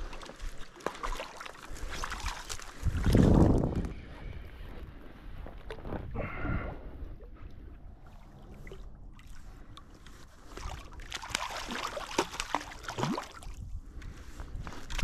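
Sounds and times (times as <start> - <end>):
fish thrashing and splashing: 0.0 - 3.6, 8.2 - 13.6.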